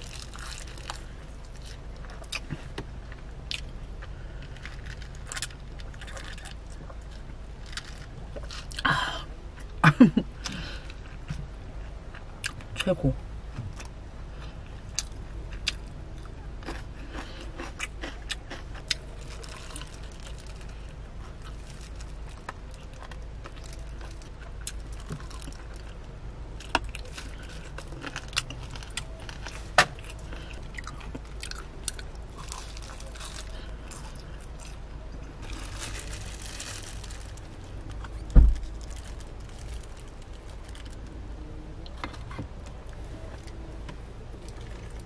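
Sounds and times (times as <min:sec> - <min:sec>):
chewing crunchy fried chicken: 0:00.0 - 0:12.8, 0:13.7 - 0:41.2
low steady hum: 0:00.0 - 0:45.0
small crunches and clicks: 0:35.4 - 0:41.2
loud low thump: 0:38.3 - 0:38.6.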